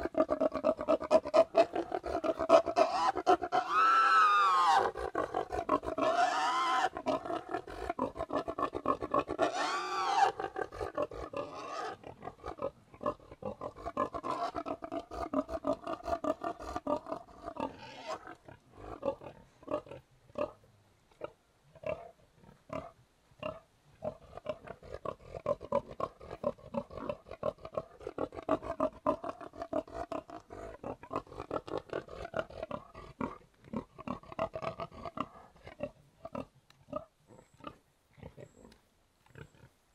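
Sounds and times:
pig squealing: 0:00.0 - 0:19.1
pigs grunting: 0:00.0 - 0:20.6, 0:21.2 - 0:39.8.

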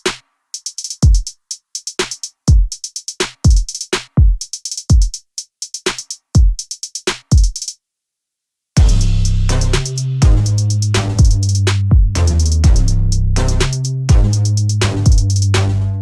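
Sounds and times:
crisp hi-hat ticks: 0:00.0 - 0:07.8, 0:08.9 - 0:15.7
deep kick drums: 0:08.8 - 0:15.6.

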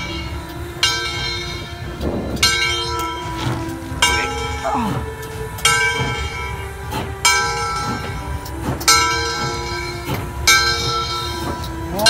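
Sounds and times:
locomotive bell clanging: 0:00.0 - 0:12.0
steam locomotive rumbling past: 0:00.0 - 0:12.0.

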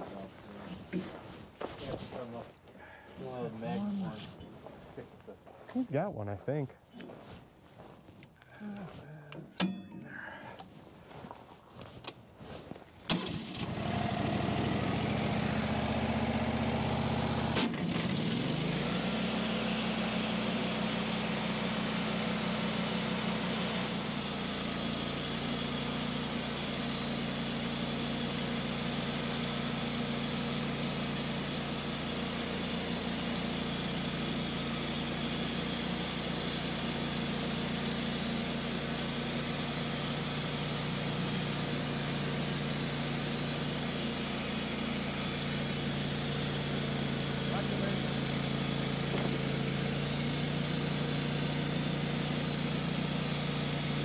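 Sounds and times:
sawmill engine running: 0:13.1 - 0:54.0.

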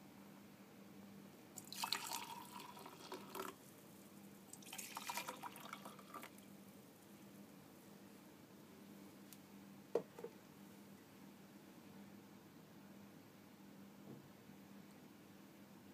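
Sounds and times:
hot water poured into mug: 0:01.6 - 0:03.6, 0:04.5 - 0:06.4.

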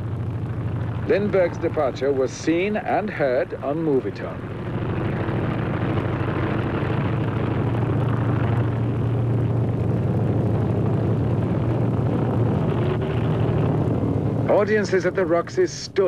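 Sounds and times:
aircraft engine droning: 0:00.0 - 0:16.0
heavy recording hiss: 0:00.0 - 0:16.0.

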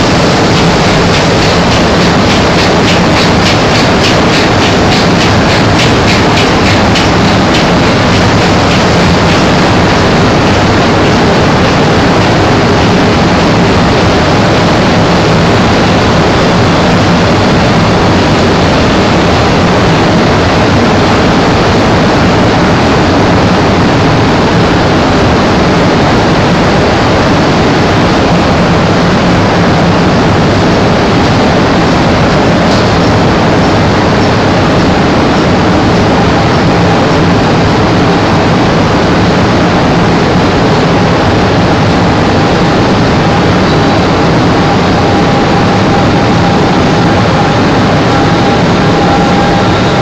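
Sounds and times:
industrial machinery running: 0:00.0 - 0:50.0
low hum: 0:00.0 - 0:50.0.

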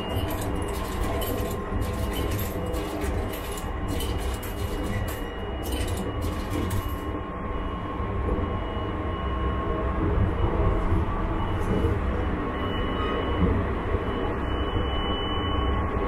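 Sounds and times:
coins clinking into vending machine: 0:00.0 - 0:07.1.

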